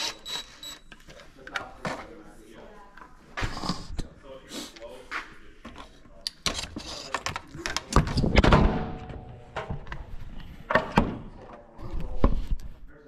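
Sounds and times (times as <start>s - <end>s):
cordless drill drilling: 0.0s - 0.8s.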